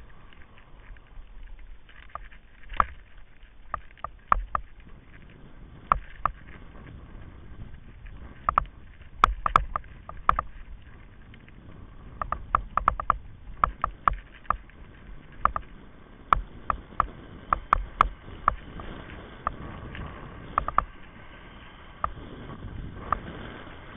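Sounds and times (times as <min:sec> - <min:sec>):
rumble of wind and tyres: 0:00.0 - 0:23.9
buggy rattling clicks and knocks: 0:08.0 - 0:10.8, 0:12.2 - 0:15.7.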